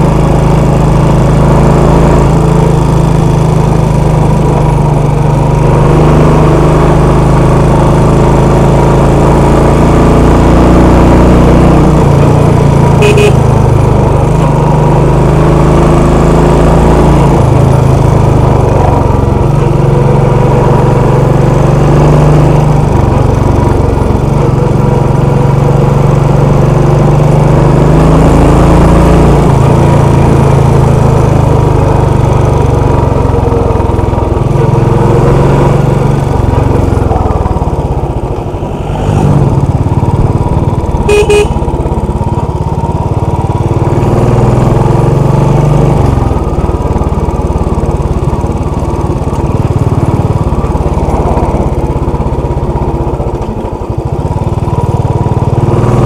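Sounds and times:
motorcycle engine running: 0.0s - 56.0s
short horn beep: 13.0s - 13.5s, 41.0s - 41.7s.

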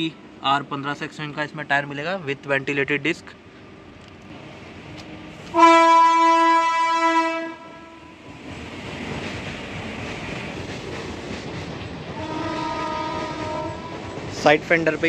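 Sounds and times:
loud horn blast: 5.5s - 8.1s, 12.2s - 14.0s.

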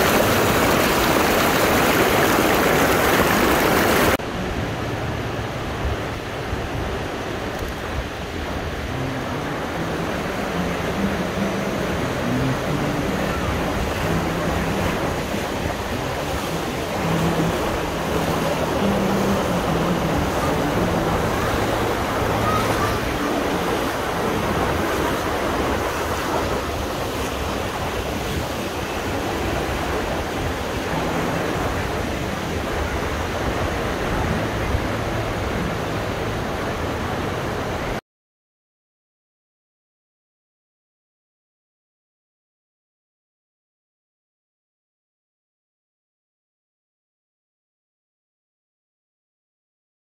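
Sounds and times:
river water rushing over rocks: 0.0s - 38.0s.

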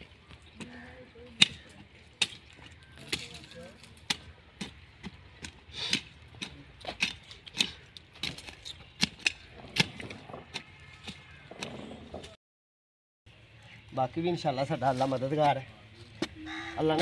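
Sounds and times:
digging tool striking stony soil: 1.4s - 11.8s.

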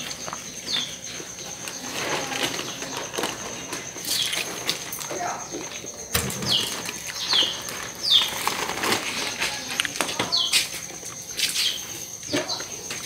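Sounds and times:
caged birds chirping: 0.0s - 13.0s.

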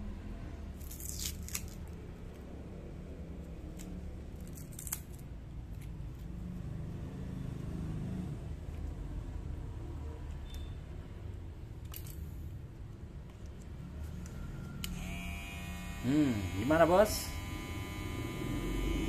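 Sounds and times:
low steady hum: 11.2s - 19.0s.

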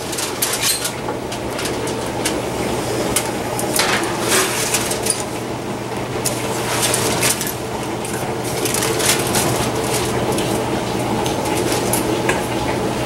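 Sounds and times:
metal scraping and clinking: 0.0s - 2.4s, 3.2s - 5.4s.

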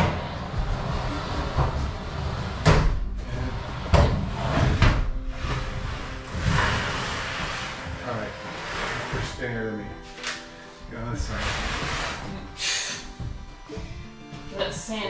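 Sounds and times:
washing machine knocking and bumping: 0.0s - 3.2s, 3.9s - 6.8s.

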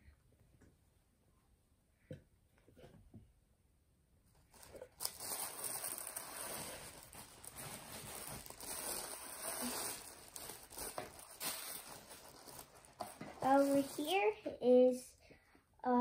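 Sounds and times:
tissue paper rustling: 4.3s - 14.4s.

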